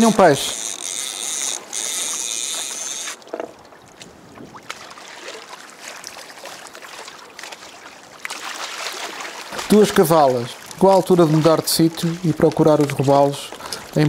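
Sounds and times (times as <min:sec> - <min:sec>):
fishing reel whirring: 0:00.0 - 0:03.3
water lapping against a hull: 0:00.0 - 0:14.0.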